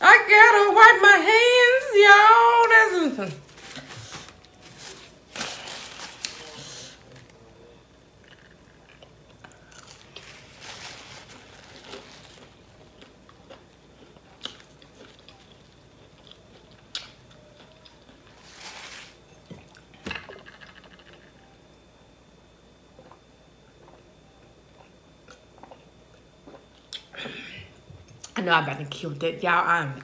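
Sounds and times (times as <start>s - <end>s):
paper napkin rustling: 3.4s - 6.9s, 10.2s - 12.6s, 18.3s - 19.2s.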